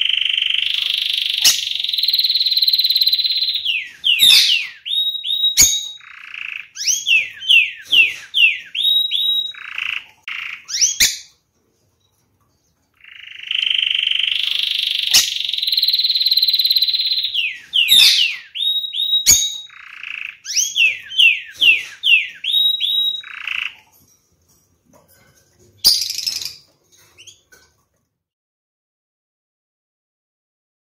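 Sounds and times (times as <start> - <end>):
canary rolling trill: 0.0 - 11.4, 12.8 - 24.2
canary singing: 0.0 - 11.5, 12.5 - 24.2, 25.8 - 27.5.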